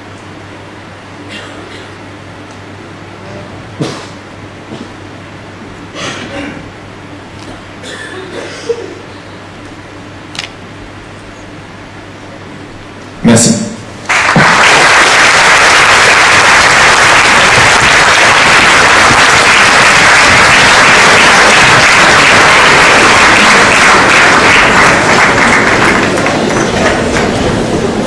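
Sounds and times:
audience applauding: 0:14.1 - 0:28.0.

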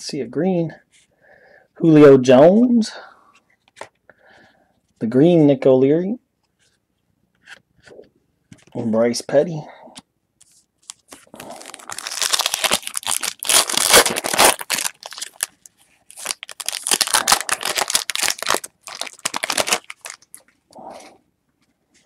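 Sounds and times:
foil wrapper tearing and crinkling: 0:10.9 - 0:20.4.

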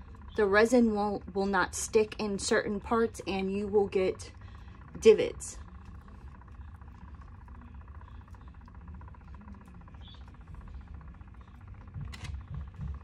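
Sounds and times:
electric motor humming: 0:00.0 - 0:13.0.

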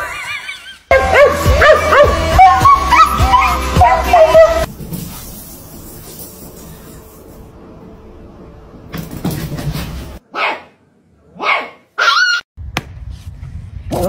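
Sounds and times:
dog barking: 0:10.3 - 0:12.4.

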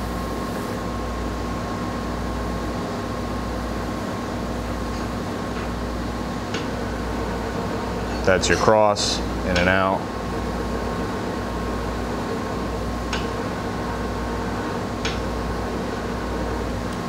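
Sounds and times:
grinder machine hum: 0:00.0 - 0:17.0
high motor whine: 0:04.4 - 0:17.0.

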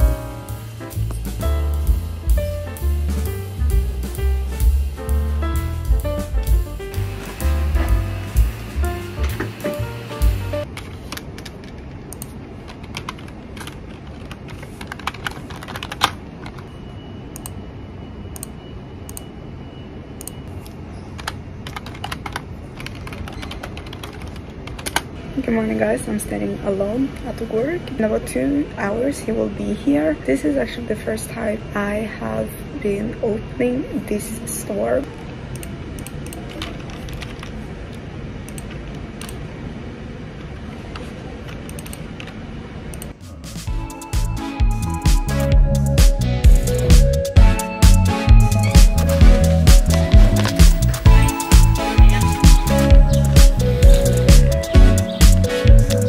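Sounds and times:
low room rumble: 0:00.0 - 0:15.9.

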